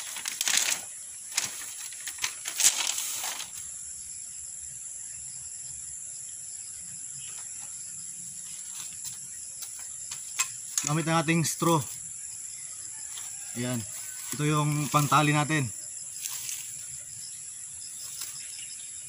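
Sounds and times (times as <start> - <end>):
bamboo strips rattling: 0.0 - 3.6, 9.6 - 11.9
insects droning: 0.0 - 19.0.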